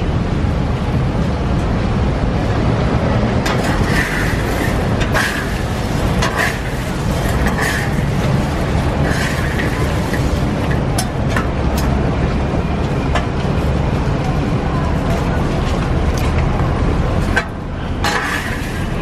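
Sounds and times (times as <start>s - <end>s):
metal spatula scraping sand in wok: 3.5s - 10.6s, 18.0s - 19.0s.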